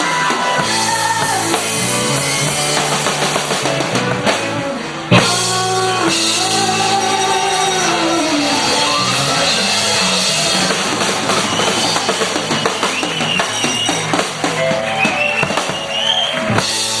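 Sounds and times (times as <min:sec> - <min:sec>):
blues-rock band playing: 0:00.0 - 0:17.0
rapid drum hits: 0:08.8 - 0:17.0.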